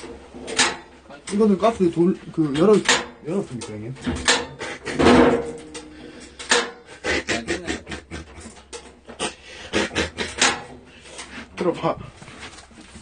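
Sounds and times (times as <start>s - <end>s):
sharp clicks and knocks: 0.0s - 6.9s, 8.2s - 9.3s, 10.1s - 11.3s.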